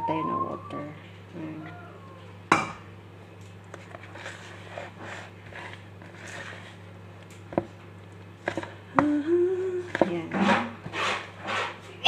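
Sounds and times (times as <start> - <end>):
batter mixture rustling: 3.6 - 6.9.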